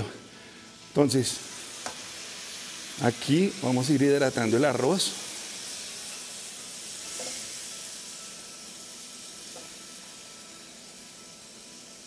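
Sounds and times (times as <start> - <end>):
sizzling and bubbling: 0.0 - 12.0
liquid poured into a hot pan: 4.4 - 12.0.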